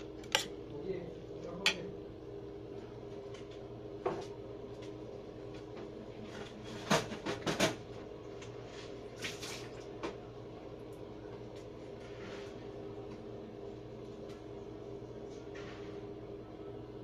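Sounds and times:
steady hum: 0:00.0 - 0:17.0.

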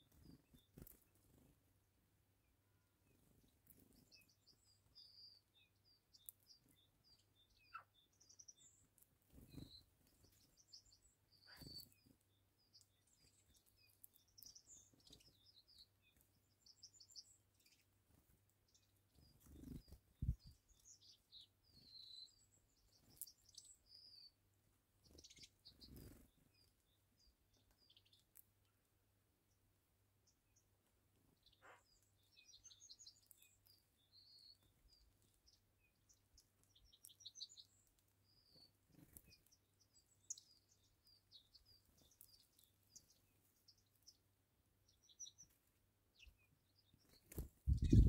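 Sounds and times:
small birds chirping: 0:00.0 - 0:48.0
soft low thumps: 0:47.7 - 0:48.0.

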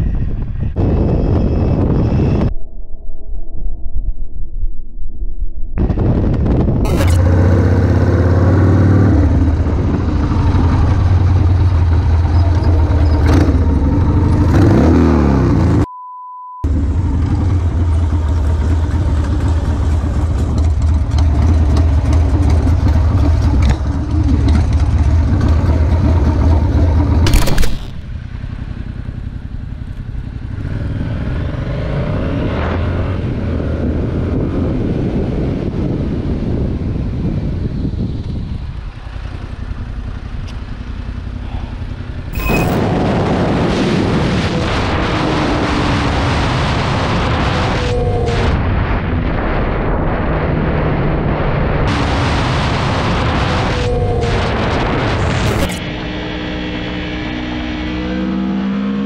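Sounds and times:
wind noise on microphone: 0:00.0 - 0:15.1, 0:30.6 - 0:39.6, 0:42.3 - 0:55.9
motorcycle engine revving: 0:05.8 - 0:15.9, 0:16.7 - 0:59.0
steady bleep: 0:15.8 - 0:16.7, 0:42.3 - 0:43.0.

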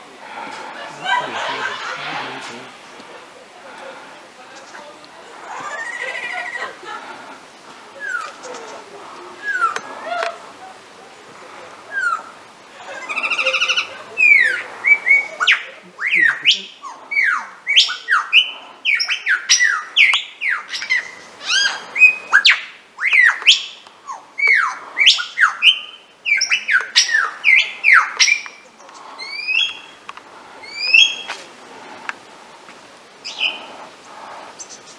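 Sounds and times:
lyrebird singing: 0:07.9 - 0:10.9, 0:11.8 - 0:32.2, 0:33.1 - 0:34.9.

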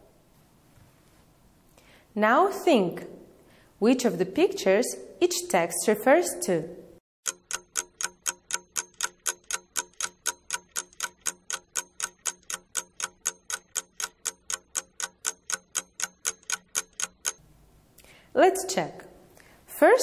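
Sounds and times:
clock ticking: 0:07.2 - 0:17.4.

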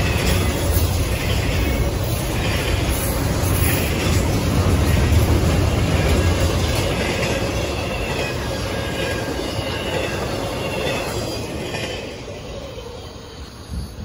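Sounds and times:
train cars rumbling on rails: 0:00.0 - 0:14.0
wheel squeal: 0:06.1 - 0:14.0.

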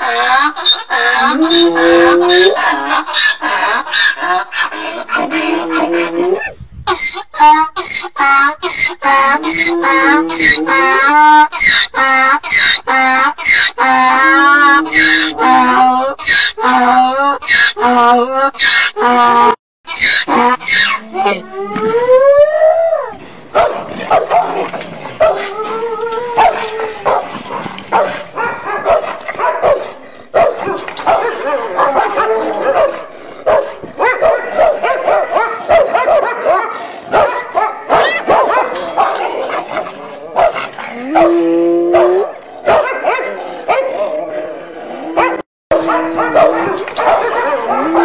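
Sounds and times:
dog yipping barking and whining: 0:19.9 - 0:21.0, 0:45.2 - 0:48.0.

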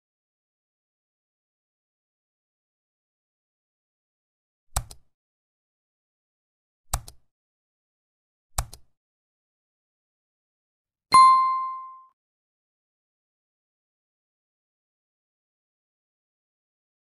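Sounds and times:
mouse clicks: 0:04.8 - 0:05.1, 0:06.9 - 0:07.3, 0:08.6 - 0:08.9
notification bell ding: 0:11.1 - 0:12.1.

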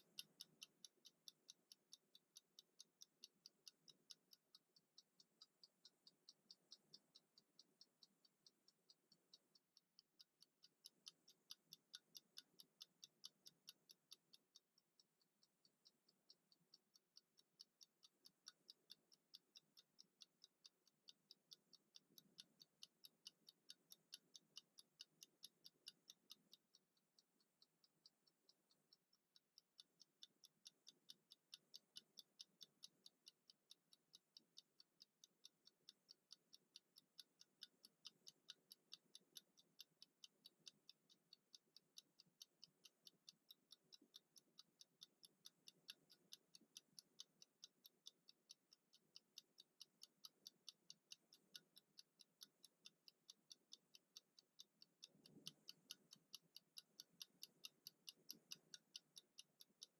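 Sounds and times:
kitchen timer ticking: 0:00.0 - 0:59.9.

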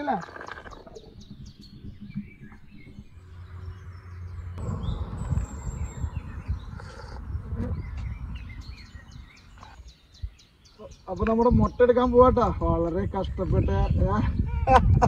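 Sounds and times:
small birds chirping: 0:00.0 - 0:15.0
rushing noise with low rumble: 0:01.0 - 0:09.5.

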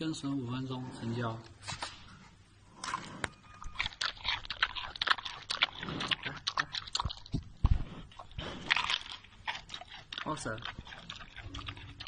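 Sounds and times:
panda chewing bamboo: 0:02.7 - 0:12.0.

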